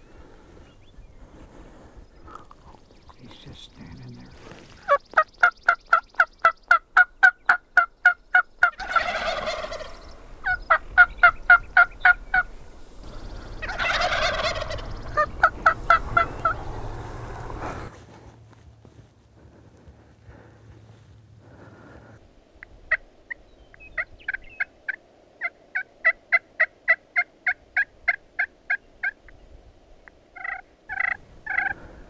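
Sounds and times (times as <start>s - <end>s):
turkey gobbling: 4.7s - 12.5s, 13.4s - 17.5s, 24.0s - 29.2s, 30.4s - 31.9s
hen turkey yelps: 4.8s - 12.5s, 13.6s - 16.6s, 24.0s - 29.2s, 30.4s - 31.8s.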